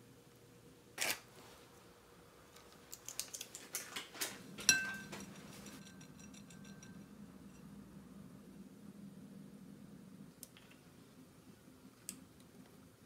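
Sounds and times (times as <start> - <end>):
packet tearing: 1.0 - 1.2
strainer clinking on glass bowl: 4.6 - 7.1.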